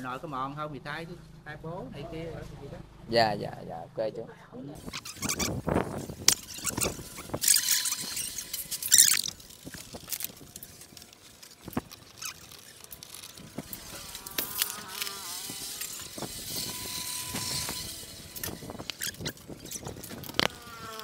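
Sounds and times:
buzzing wavering whine: 4.8s - 21.0s.

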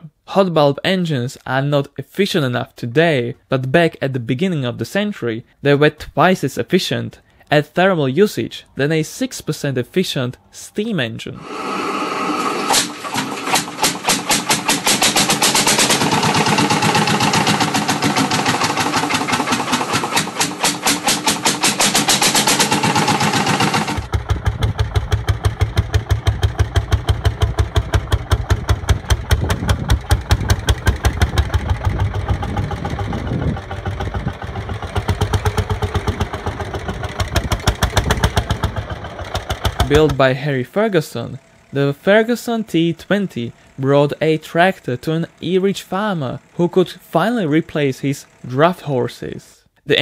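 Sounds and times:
tractor engine chugging: 11.4s - 49.1s.

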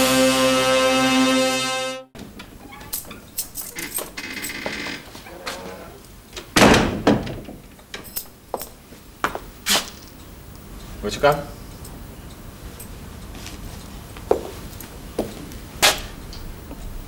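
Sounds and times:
door opening with a thump: 6.4s - 7.7s
footsteps on wooden floor: 14.2s - 14.6s, 15.2s - 15.4s.

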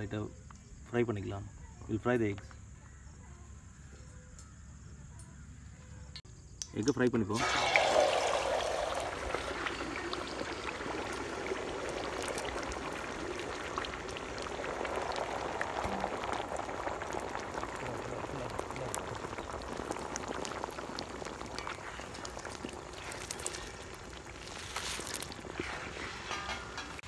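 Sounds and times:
eggs sizzling in oil: 7.3s - 27.0s.

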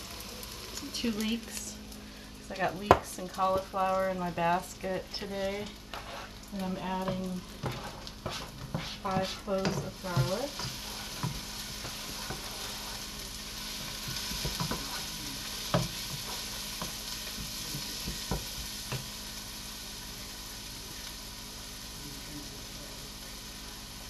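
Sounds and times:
vegetables sizzling in a pot: 0.0s - 24.0s.

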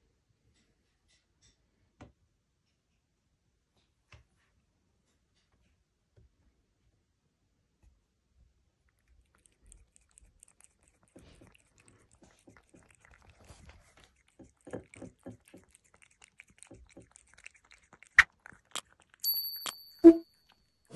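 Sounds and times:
cat chewing and lapping: 8.4s - 20.9s
short electronic chime: 19.3s - 20.3s.

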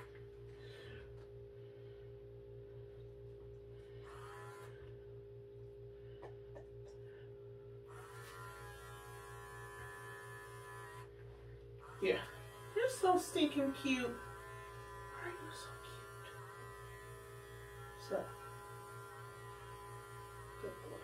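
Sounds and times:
electric pet clipper humming: 4.0s - 5.0s, 7.9s - 21.0s.

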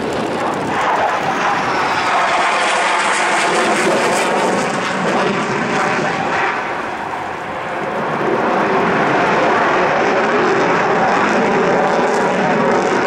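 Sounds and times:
fighter jet roar: 0.0s - 13.0s.

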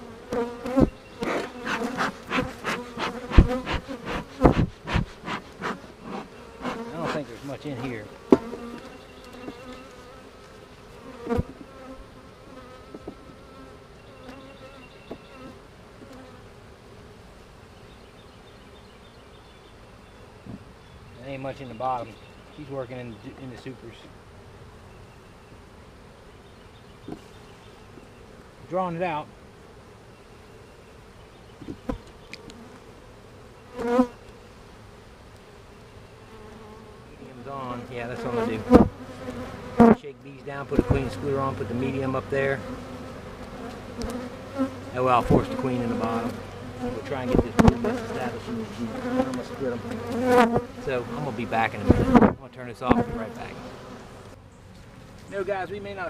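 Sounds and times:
honeybees buzzing: 0.0s - 56.0s
light knock on hive: 8.3s - 8.6s.

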